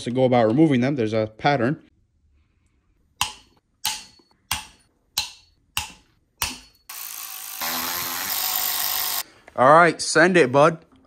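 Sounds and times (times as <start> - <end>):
ratchet wrench clicking: 6.9 - 9.2.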